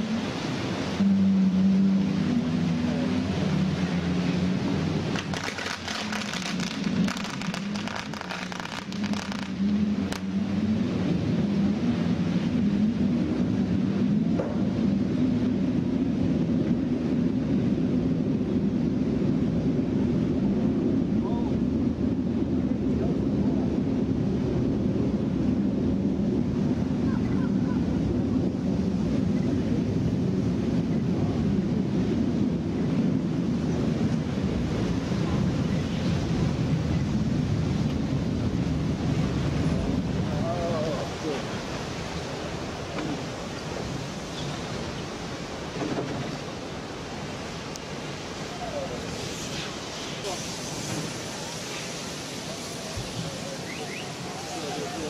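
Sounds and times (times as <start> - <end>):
steady low drone: 0.0 - 44.1
wind buffeting microphone: 0.0 - 55.0
firecrackers crackling: 5.1 - 10.2.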